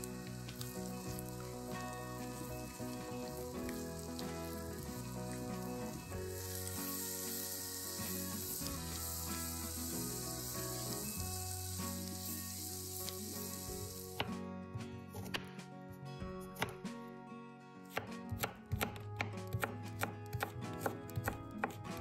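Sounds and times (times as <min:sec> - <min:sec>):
vegetables sizzling in a pan: 0:00.0 - 0:14.3
background music: 0:00.0 - 0:22.0.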